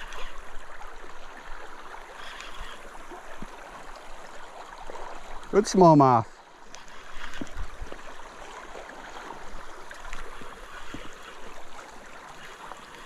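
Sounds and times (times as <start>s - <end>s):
shallow river water flowing: 0.0s - 13.0s
faint clicks: 2.2s - 2.8s.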